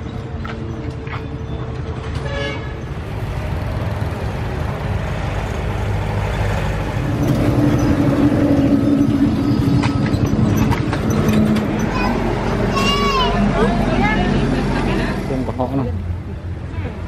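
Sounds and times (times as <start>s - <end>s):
road traffic noise: 0.0s - 17.0s
motorcycle engine rumble: 2.8s - 12.7s.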